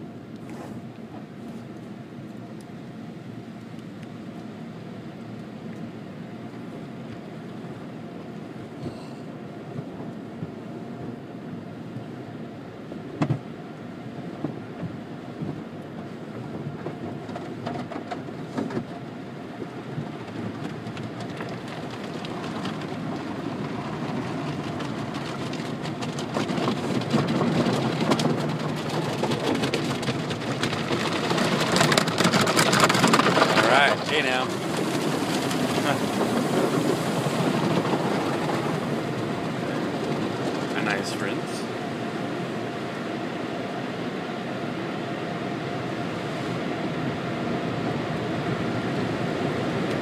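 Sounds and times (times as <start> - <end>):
car wash brushes and water spray: 0.2 - 2.2, 13.0 - 50.0.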